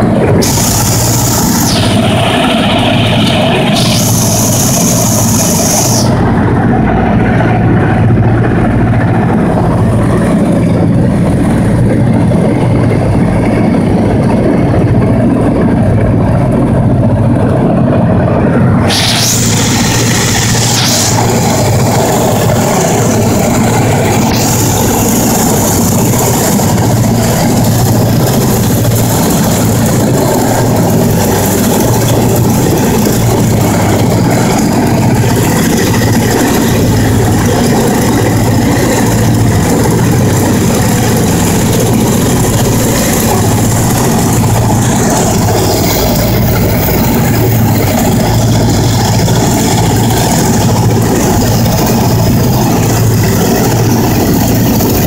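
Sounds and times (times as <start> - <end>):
propeller aircraft engines droning: 0.0 - 55.0
wind rushing: 0.0 - 55.0.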